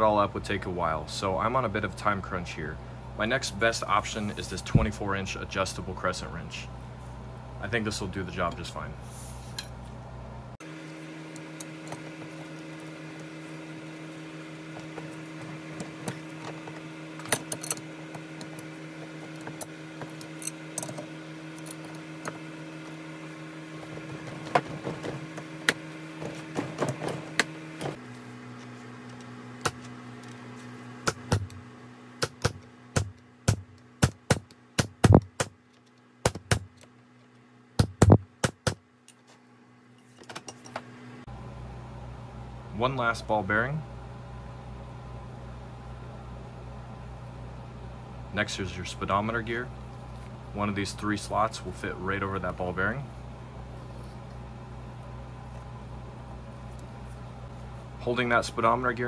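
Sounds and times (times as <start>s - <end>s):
steady low hum: 0.0s - 59.0s
metal tools clinking: 17.2s - 22.4s
sharp metal knocks: 32.2s - 35.6s, 36.2s - 36.8s.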